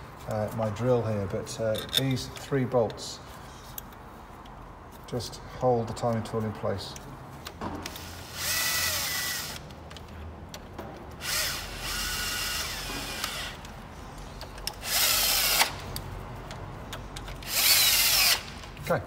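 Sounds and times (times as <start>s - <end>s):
cordless drill whining: 8.3s - 9.6s, 11.2s - 13.6s, 14.8s - 15.8s, 17.4s - 18.5s.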